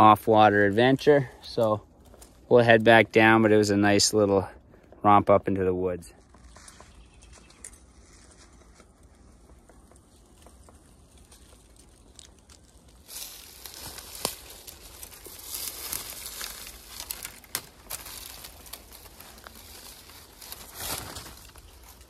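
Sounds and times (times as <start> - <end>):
twigs snapping: 2.0 - 2.5, 6.2 - 22.0
dry brush rustling under bare feet: 6.2 - 22.0.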